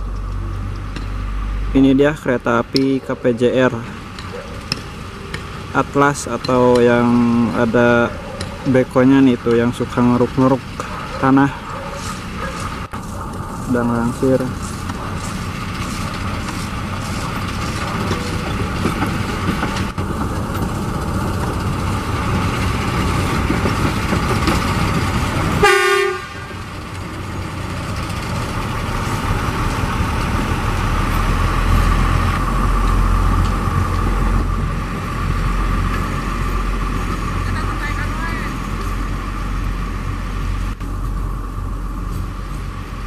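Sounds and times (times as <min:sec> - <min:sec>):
diesel train engine rumble: 0:00.0 - 0:43.0
train rolling on rails: 0:00.0 - 0:43.0
short horn toot: 0:25.6 - 0:26.5.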